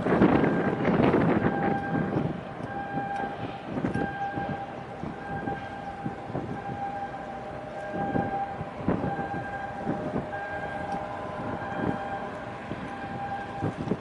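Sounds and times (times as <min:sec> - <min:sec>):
water noise: 0:00.0 - 0:14.0
wind: 0:00.0 - 0:14.0
beeping alarm tone: 0:01.4 - 0:02.1, 0:03.9 - 0:07.2, 0:07.8 - 0:13.8.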